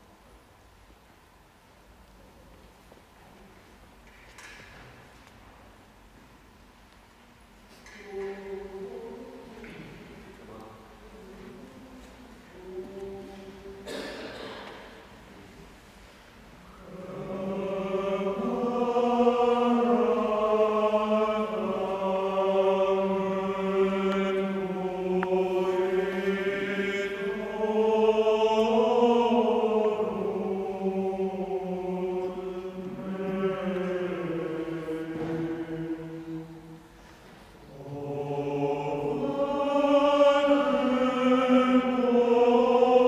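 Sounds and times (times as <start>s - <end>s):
mixed choir singing: 7.8s - 15.1s, 16.7s - 43.0s.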